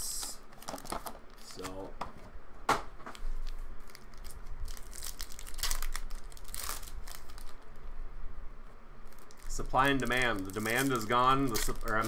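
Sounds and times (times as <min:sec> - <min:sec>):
foil wrappers crinkling: 0:03.1 - 0:07.6, 0:09.0 - 0:12.0.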